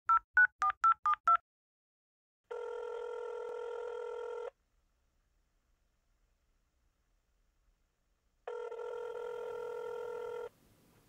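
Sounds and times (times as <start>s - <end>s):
phone ringback tone: 2.5s - 4.5s, 8.5s - 10.5s.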